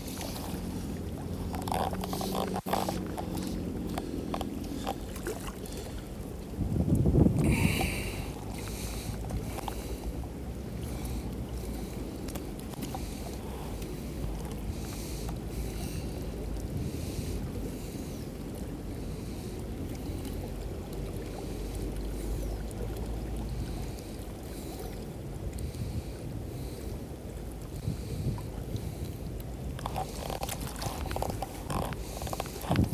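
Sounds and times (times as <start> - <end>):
creek flowing: 0.0 - 32.9
wind buffeting microphone: 5.8 - 10.7, 25.2 - 32.9.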